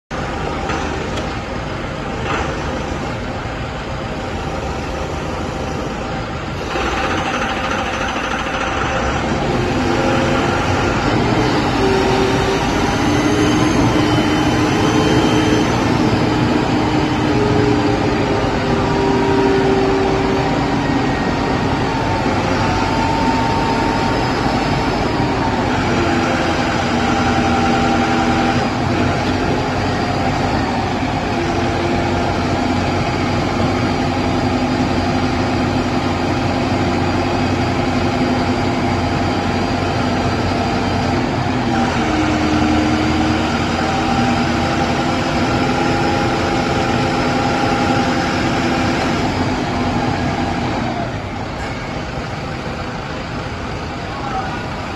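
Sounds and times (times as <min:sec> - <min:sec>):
forklift engine running: 0:00.1 - 0:54.9
hydraulic whine: 0:00.2 - 0:54.9.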